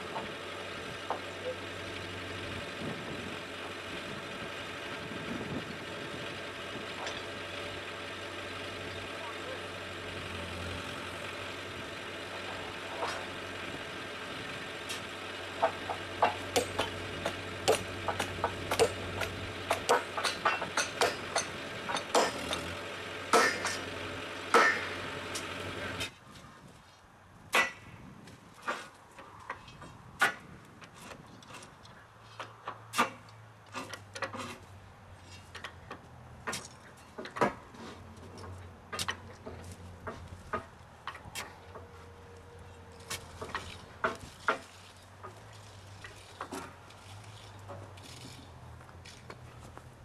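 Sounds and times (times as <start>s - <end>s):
metal tools striking rails: 15.6s - 23.9s, 24.5s - 25.5s.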